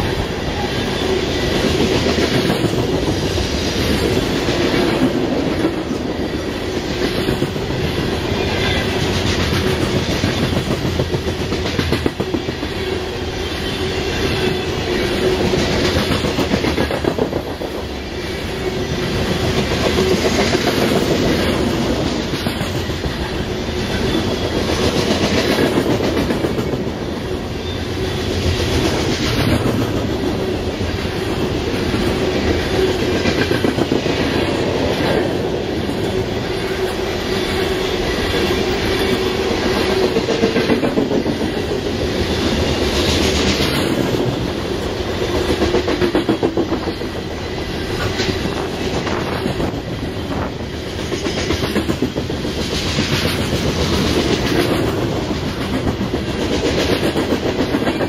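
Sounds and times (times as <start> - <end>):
train cars rumbling past: 0.0 - 58.0.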